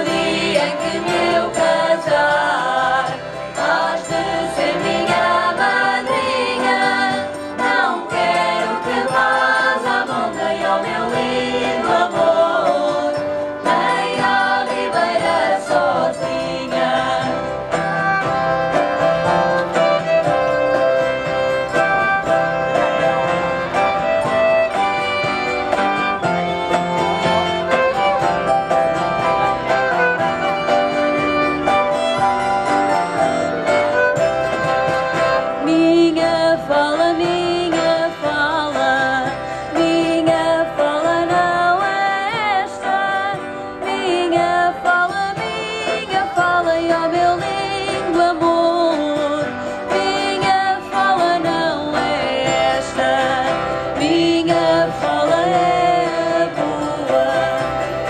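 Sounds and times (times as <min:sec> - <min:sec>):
women singing: 0:00.0 - 0:18.3, 0:35.3 - 0:58.0
guitar playing: 0:00.0 - 0:58.0
violin playing: 0:16.2 - 0:47.9.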